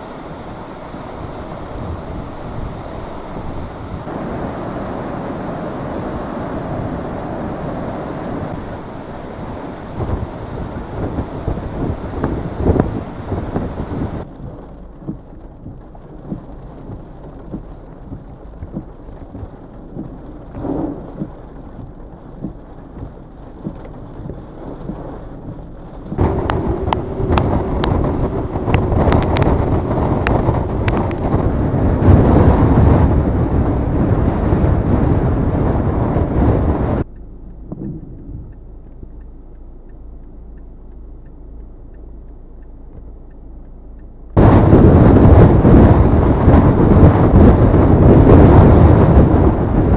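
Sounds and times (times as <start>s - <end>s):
heavy rain: 0.0s - 37.1s, 44.3s - 49.9s
strong wind on microphone: 0.0s - 37.1s, 37.7s - 38.6s, 44.4s - 49.9s
sharp ticks: 14.4s - 31.4s, 37.0s - 44.4s.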